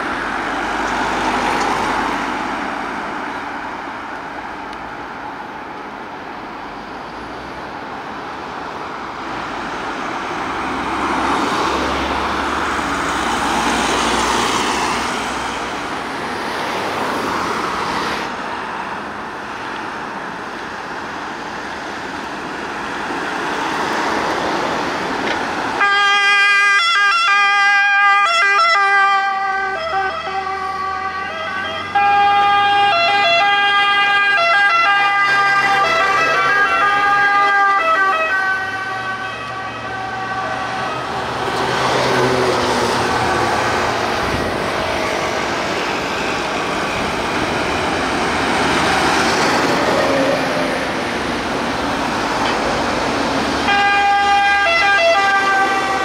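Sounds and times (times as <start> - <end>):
vehicles passing on road: 0.0 - 56.0
two-tone siren: 25.8 - 41.3, 53.6 - 56.0.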